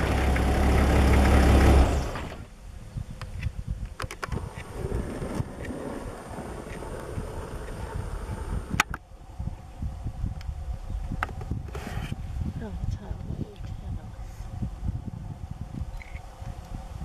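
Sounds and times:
vehicle engine idling: 0.0s - 3.0s.

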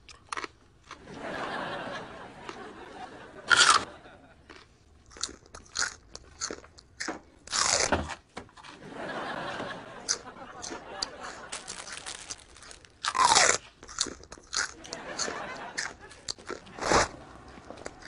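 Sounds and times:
person crunching raw carrot: 0.0s - 1.0s, 3.5s - 3.9s, 4.5s - 7.9s, 10.1s - 18.0s.

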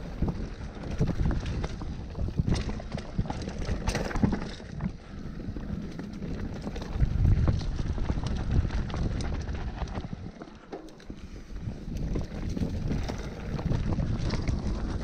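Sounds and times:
bike rattling over bumps: 0.0s - 15.0s
bike tyres on dirt: 0.0s - 15.0s
wind rushing over microphone: 5.0s - 10.4s, 11.1s - 15.0s.

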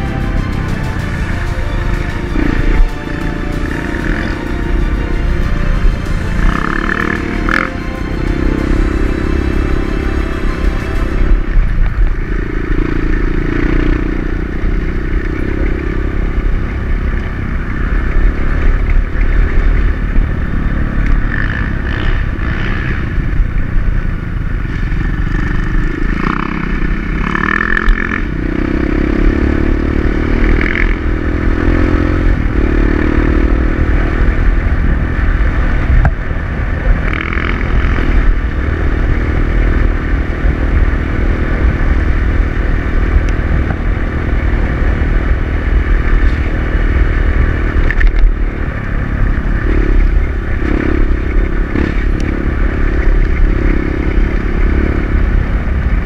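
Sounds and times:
dirt bike engine running: 0.0s - 7.7s, 8.4s - 56.0s.

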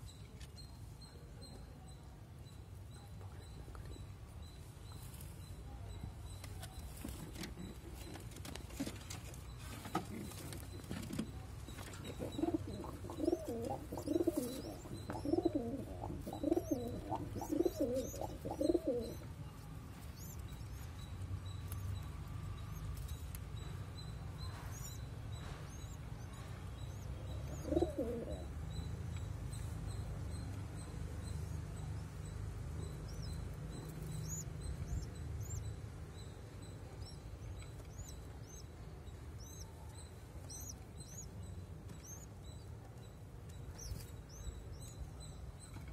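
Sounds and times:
pigeon cooing: 12.0s - 19.2s, 27.4s - 28.5s.

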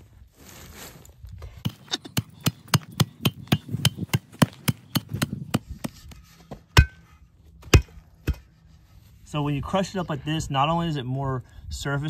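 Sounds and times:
tamper pounding charcoal: 1.6s - 8.6s.

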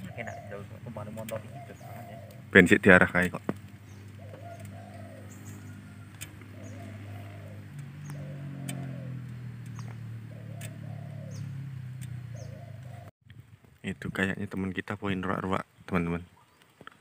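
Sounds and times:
dove cooing: 0.0s - 13.1s
small birds chirping: 0.0s - 13.1s, 15.3s - 17.0s.

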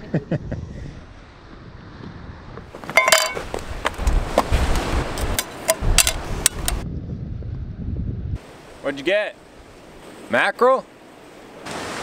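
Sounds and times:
camp stove and pan clattering: 2.8s - 3.6s, 5.1s - 6.8s.

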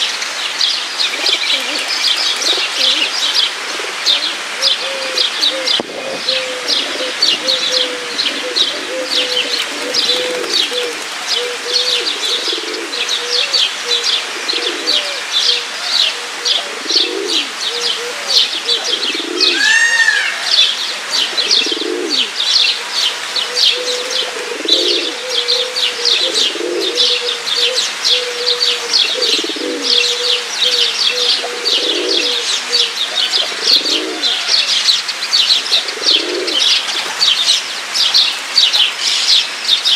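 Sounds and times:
small birds chirping: 0.0s - 19.6s
pigeons cooing: 1.0s - 37.4s
rising and falling bird call: 19.2s - 20.8s.

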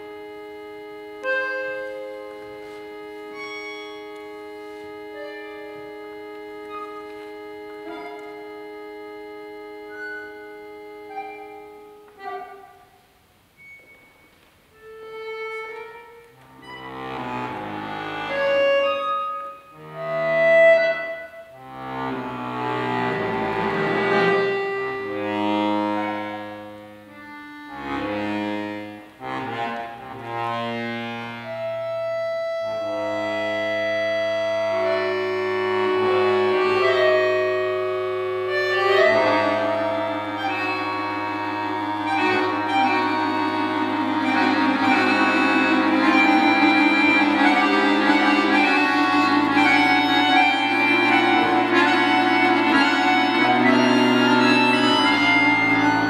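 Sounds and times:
accordions playing chords: 0.0s - 56.0s.

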